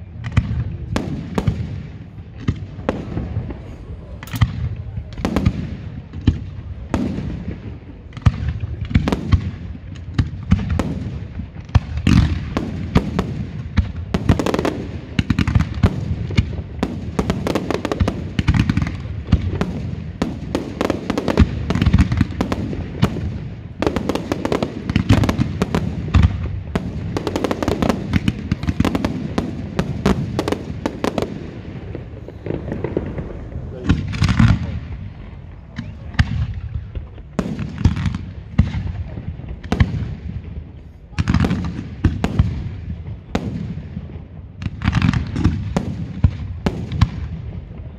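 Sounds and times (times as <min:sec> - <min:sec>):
fireworks bangs and crackling: 0:00.0 - 0:47.9.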